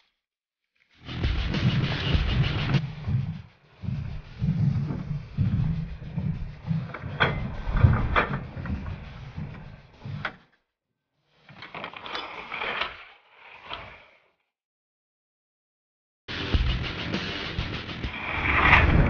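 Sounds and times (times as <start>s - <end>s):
skis sliding and scraping: 1.1s - 10.4s, 11.4s - 14.3s, 18.1s - 19.0s
rumbling noise: 1.2s - 10.2s, 18.1s - 19.0s.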